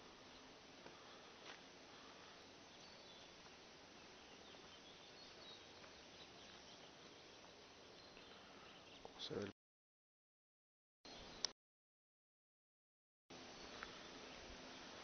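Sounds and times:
faint bird chirps: 1.9 - 9.5.

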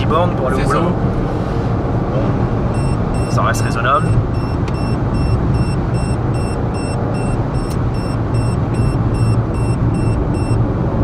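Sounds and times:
car engine and road rumble: 0.0 - 11.0
short high beeps: 2.7 - 10.6.

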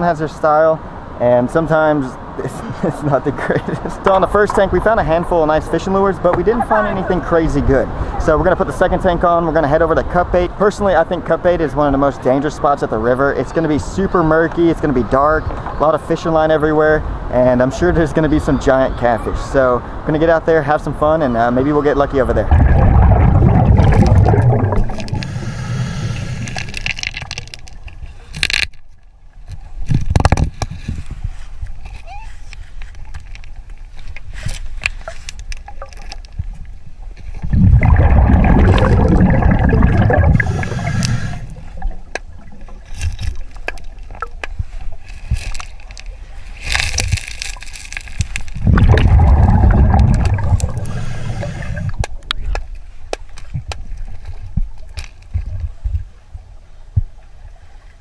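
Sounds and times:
underwater low rumble: 22.3 - 28.3, 35.8 - 47.2, 48.3 - 52.5
gurgling bubble bursts: 22.4 - 27.5, 37.4 - 42.9, 48.6 - 52.1
diver breathing through regulator: 22.7 - 26.9, 37.9 - 41.8, 49.2 - 52.0
hiss: 40.4 - 41.5, 50.8 - 52.0.

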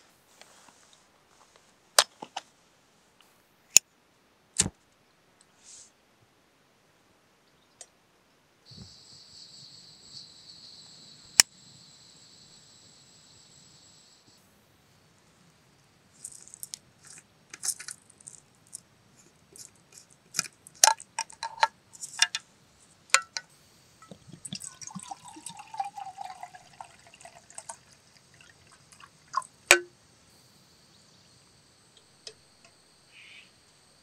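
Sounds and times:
metal cap clicking and clinking: 19.6 - 22.4, 23.1 - 26.4
water pouring into mug: 24.4 - 29.5.

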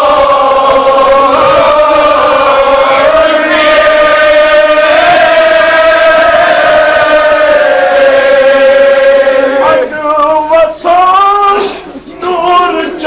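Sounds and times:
man chanting: 9.5 - 13.0.

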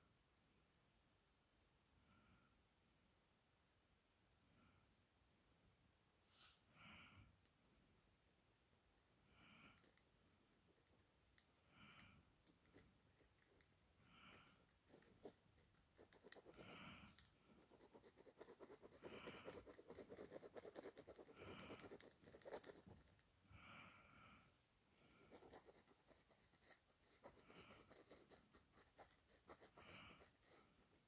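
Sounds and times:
soft breathing: 9.1 - 31.0
pen scratching on paper: 12.5 - 23.1, 25.2 - 31.0.

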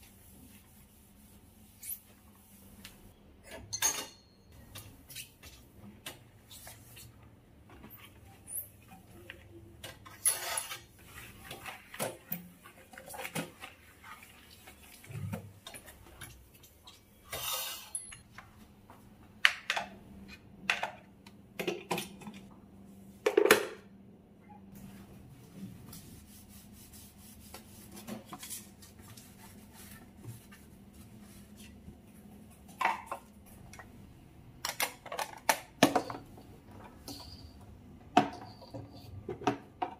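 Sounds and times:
wiping rubbing sounds: 0.0 - 3.0, 24.8 - 31.9.

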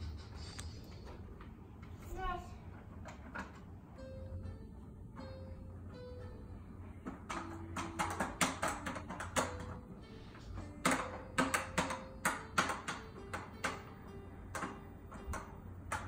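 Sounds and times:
electronic toy piano notes: 3.9 - 16.0.

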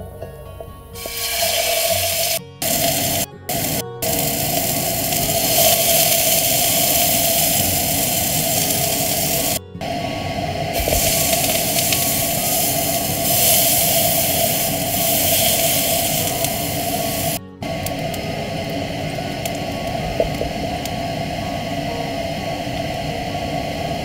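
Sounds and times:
burger sizzling in frying pan: 1.0 - 9.6, 10.8 - 17.4.

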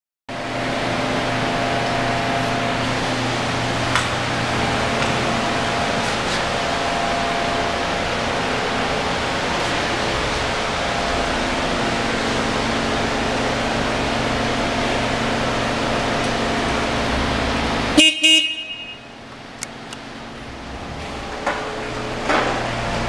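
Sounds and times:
fan-like rushing noise: 0.4 - 18.0.

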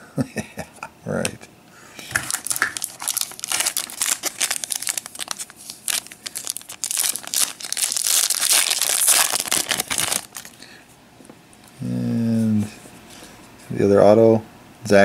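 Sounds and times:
foil wrapper crinkling: 2.2 - 10.6
foil wrapper ripping open: 2.2 - 10.6.

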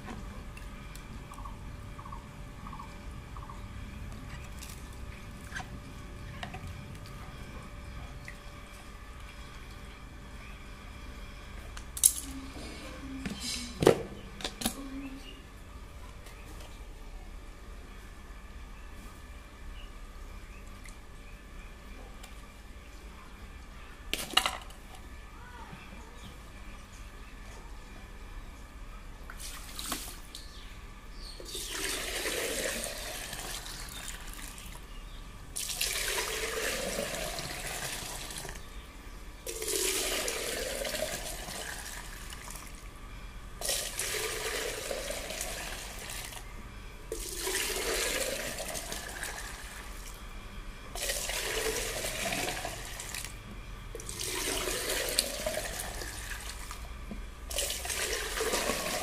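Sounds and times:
juice pouring between plastic jugs: 31.4 - 34.7, 35.6 - 38.6, 39.5 - 42.8, 43.6 - 46.4, 47.1 - 50.2, 51.0 - 53.4, 54.0 - 56.8, 57.5 - 59.0.

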